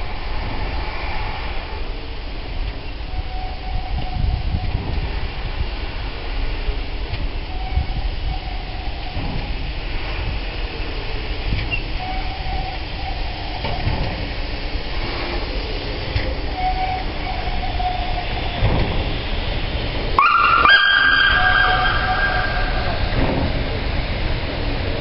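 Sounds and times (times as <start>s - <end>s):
slow exhaust beats: 0.0s - 25.0s
steam locomotive rumbling past: 0.0s - 25.0s
train wheel noise: 0.0s - 25.0s
high whistle blast: 20.2s - 23.7s.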